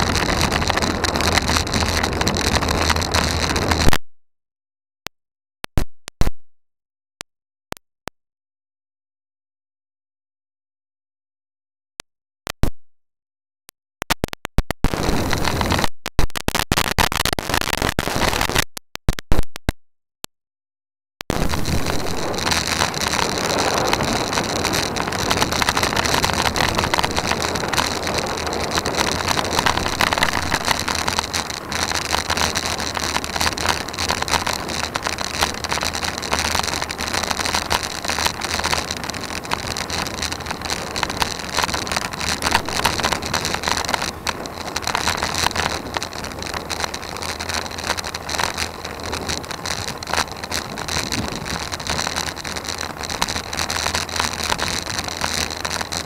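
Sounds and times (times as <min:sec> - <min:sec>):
road rumble: 0:00.0 - 0:03.8, 0:21.3 - 0:56.0
wind rushing over microphone: 0:00.0 - 0:03.9, 0:21.3 - 0:56.0.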